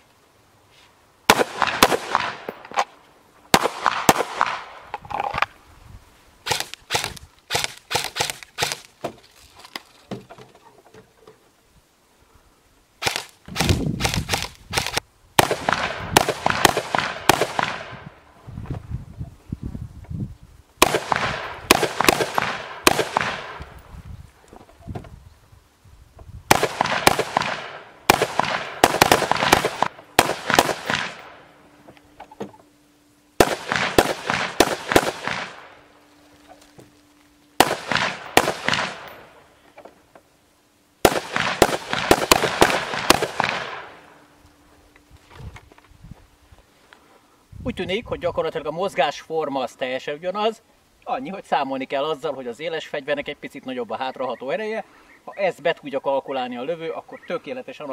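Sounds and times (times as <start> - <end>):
rapid gunshots: 6.5 - 8.9, 13.0 - 17.9, 20.8 - 23.6, 26.5 - 31.3, 33.4 - 35.7, 37.6 - 39.1, 41.0 - 43.9.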